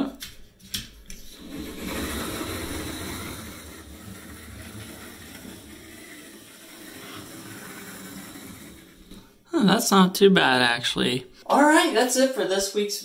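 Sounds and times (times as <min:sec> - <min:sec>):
wheels rolling on rails: 0:01.2 - 0:09.4
model train motor whirring: 0:01.3 - 0:09.3.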